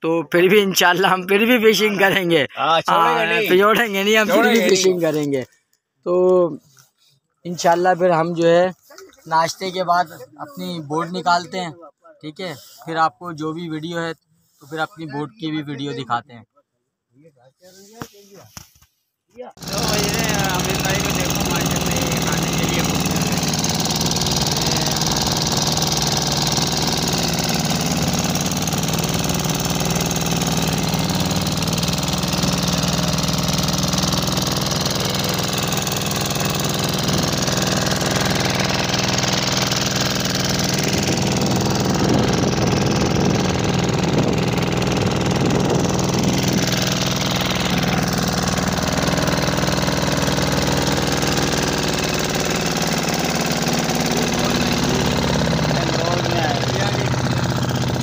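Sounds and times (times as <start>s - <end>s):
boat engine running steadily: 19.6s - 58.0s.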